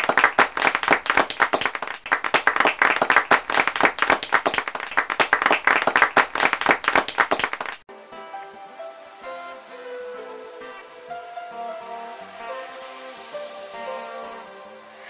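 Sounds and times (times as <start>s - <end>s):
crowd applauding: 0.0s - 14.4s.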